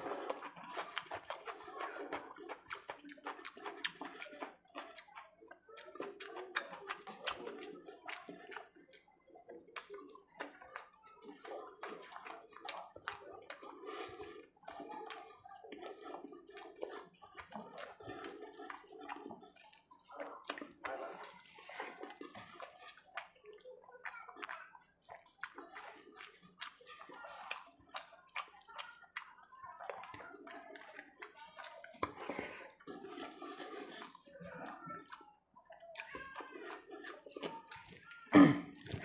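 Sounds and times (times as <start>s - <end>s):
chewing with smacks: 0.0s - 39.0s
fingers squishing rice: 14.6s - 29.4s.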